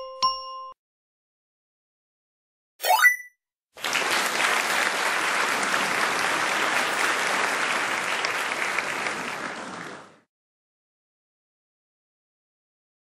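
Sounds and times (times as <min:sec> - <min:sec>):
ding: 0:00.0 - 0:00.8
recorded applause: 0:03.8 - 0:10.3.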